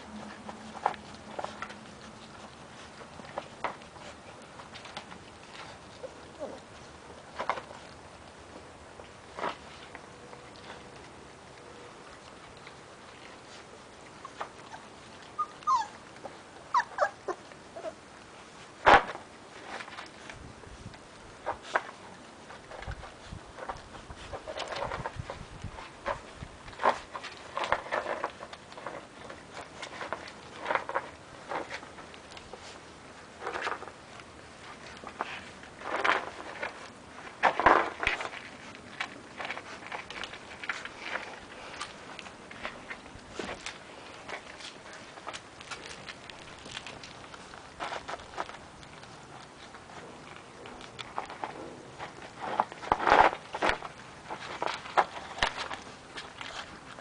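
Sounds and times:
puppies eating and lapping: 0:00.0 - 0:57.0
puppies whimpering and yelping: 0:05.7 - 0:06.8, 0:13.9 - 0:18.2.

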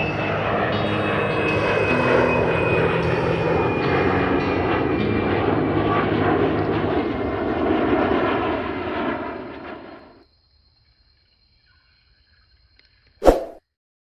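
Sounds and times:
aircraft engine noise: 0:00.0 - 0:10.2.

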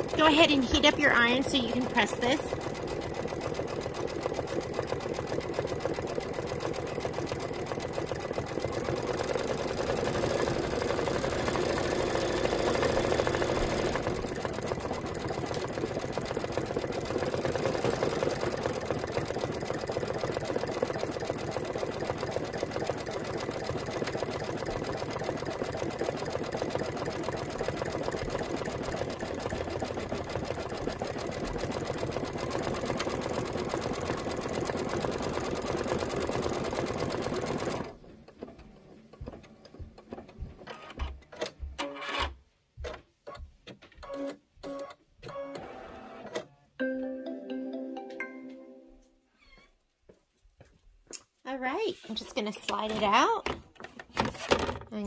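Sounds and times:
embroidery machine stitching: 0:00.0 - 0:38.6.

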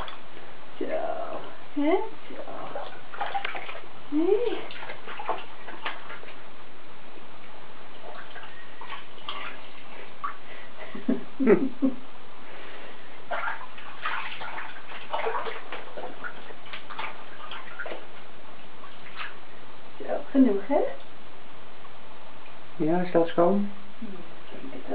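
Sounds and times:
bathwater sloshing and splashing: 0:00.0 - 0:00.6, 0:02.1 - 0:11.1, 0:12.5 - 0:19.8.

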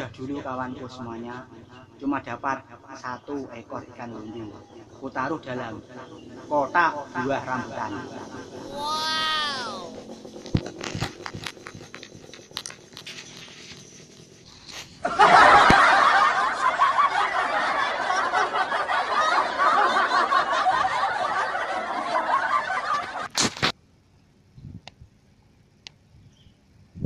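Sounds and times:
canned crowd laughter: 0:15.0 - 0:23.3.

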